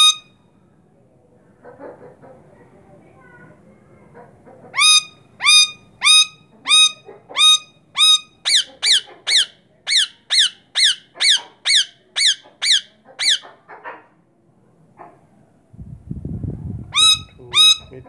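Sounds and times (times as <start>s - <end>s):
parakeet shrill calls: 0.0s - 0.4s, 4.8s - 13.5s, 16.9s - 18.0s.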